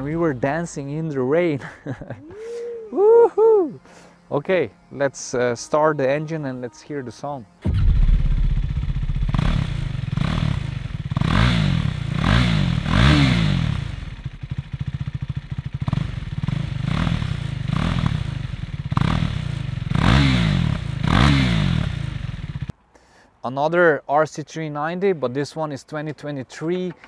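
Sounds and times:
motorcycle engine revving: 7.6 - 22.7.

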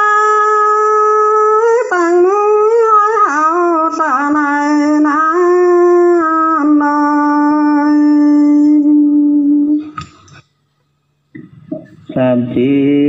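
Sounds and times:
person singing a long note: 0.0 - 10.1.

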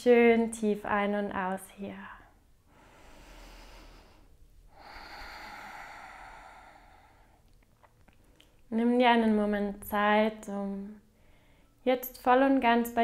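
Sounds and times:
woman breathing deeply: 2.6 - 7.5, 11.1 - 11.8.

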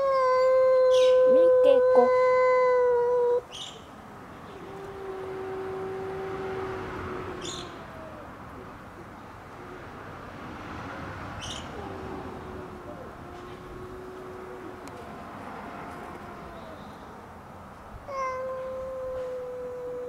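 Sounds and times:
cat yowling: 0.0 - 3.5, 4.5 - 8.5, 11.6 - 14.8, 15.8 - 17.2, 18.0 - 20.0
traffic: 0.0 - 20.0.

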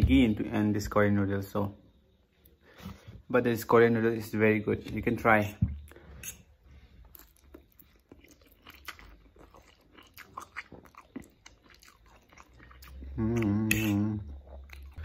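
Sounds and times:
man chewing and slurping noodles: 5.8 - 15.0
man humming: 13.1 - 14.3.

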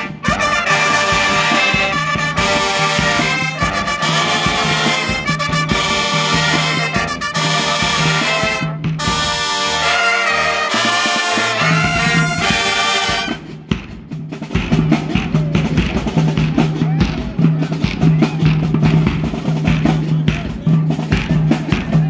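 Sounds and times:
brass and saxophones: 0.0 - 13.6
drums with driving beat: 0.0 - 22.0.

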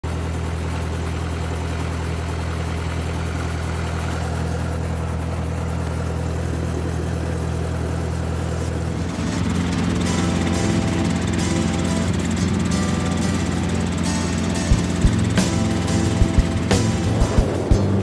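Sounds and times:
helicopter engine and rotor drone: 0.0 - 18.0.

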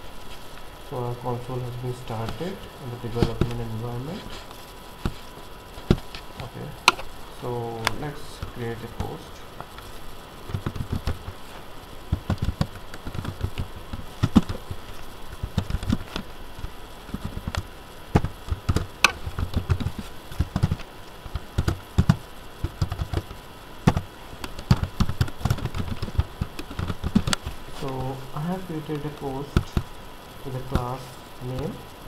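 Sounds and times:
computer keyboard typing: 12.1 - 14.8, 15.4 - 16.2, 18.2 - 27.4.

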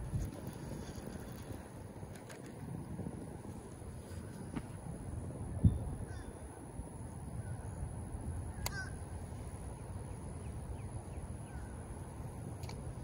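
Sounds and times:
wind buffeting microphone: 0.0 - 9.3.

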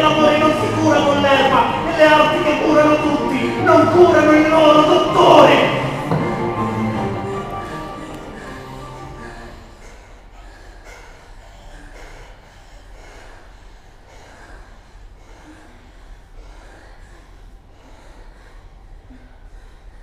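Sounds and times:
music: 0.0 - 9.8
people breathing in short breaths: 5.9 - 20.0.

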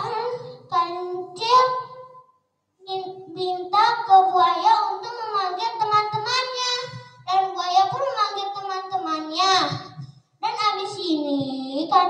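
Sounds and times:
child singing: 0.0 - 1.9, 2.9 - 12.0.

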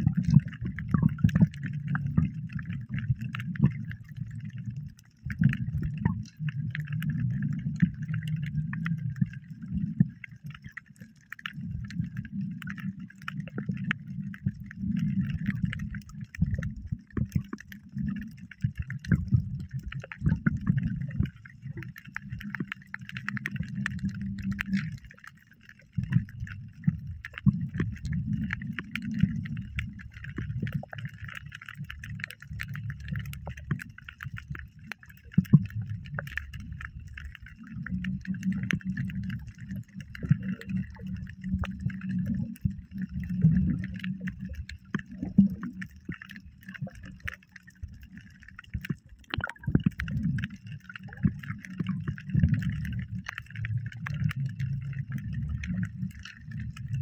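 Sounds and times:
muffled water sloshing: 0.0 - 57.0.

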